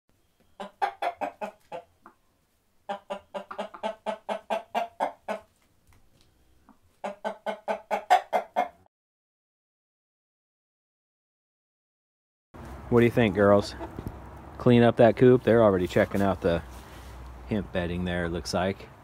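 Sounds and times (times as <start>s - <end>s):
hen clucking: 0.4s - 5.6s, 6.6s - 8.9s, 13.2s - 14.3s.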